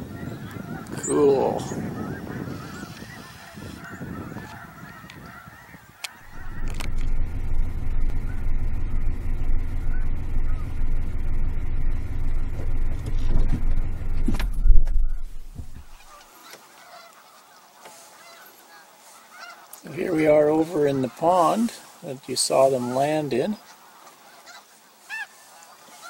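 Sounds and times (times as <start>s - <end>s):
geese honking: 0.0s - 26.0s
car engine rumble and road noise: 6.0s - 16.8s.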